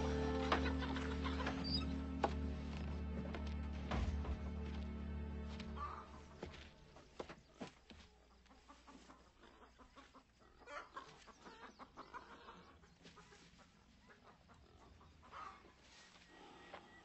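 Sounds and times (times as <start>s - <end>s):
hens clucking faintly: 7.2s - 17.0s.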